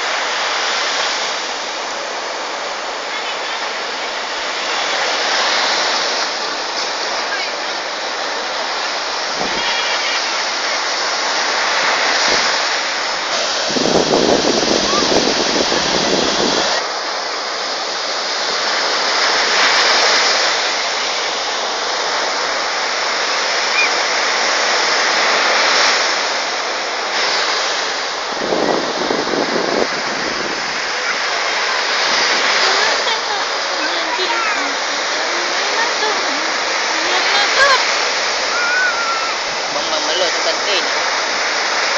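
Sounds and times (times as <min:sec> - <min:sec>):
surf breaking on beach: 0:00.0 - 0:41.9.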